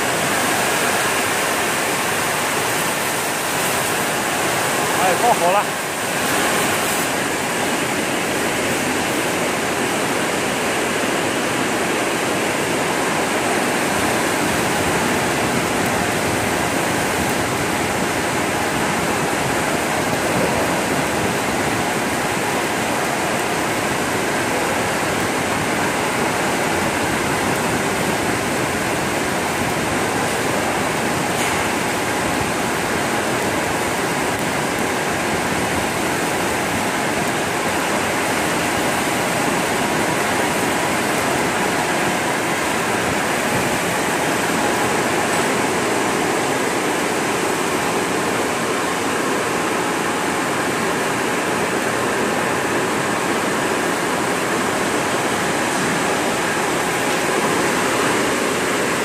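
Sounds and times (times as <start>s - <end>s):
water spraying inside washing machine: 0.0s - 47.0s.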